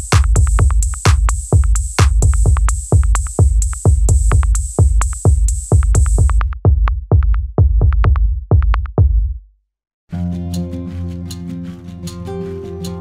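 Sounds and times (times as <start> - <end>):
electronic music with drum-machine beat: 0.0 - 9.3.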